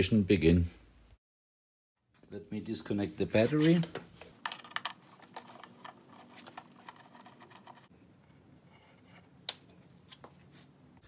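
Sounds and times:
faint cable handling: 3.6s - 10.7s.

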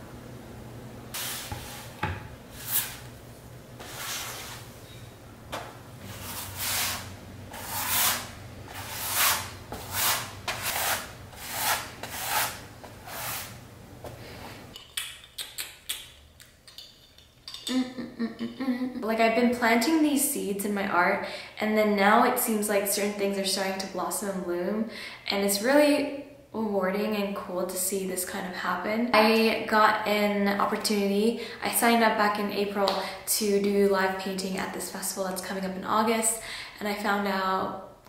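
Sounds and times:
paintbrush scratching on canvas: 6.0s - 13.5s.

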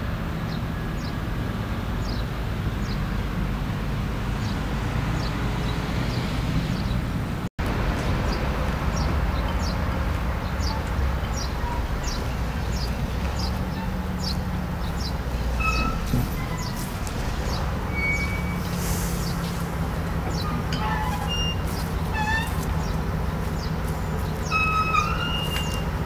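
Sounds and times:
low engine hum: 0.0s - 26.0s
small birds chirping: 0.5s - 1.2s, 2.0s - 3.2s, 8.2s - 26.0s.

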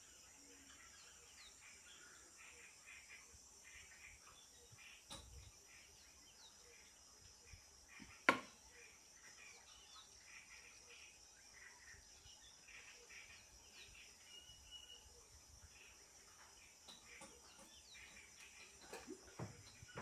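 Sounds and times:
insect buzz: 0.0s - 20.0s
bird chirps: 7.9s - 20.0s.

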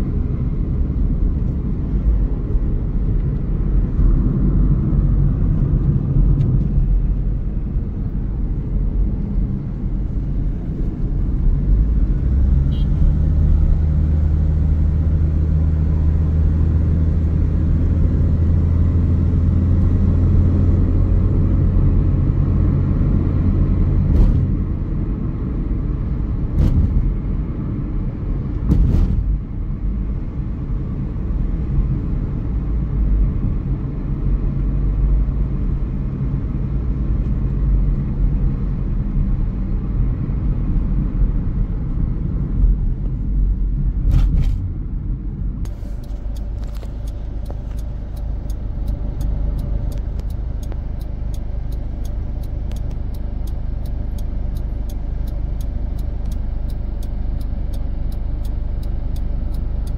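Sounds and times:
car road and engine rumble: 0.0s - 59.9s
light even ticking: 45.7s - 59.9s.

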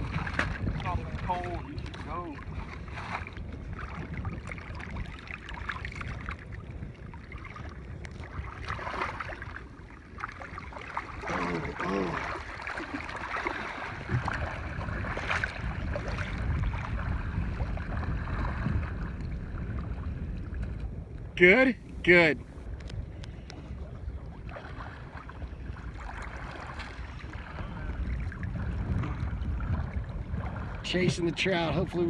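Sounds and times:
choppy water lapping: 0.0s - 32.0s
wind buffeting the microphone: 0.0s - 32.0s
small splashes: 7.2s - 17.0s.

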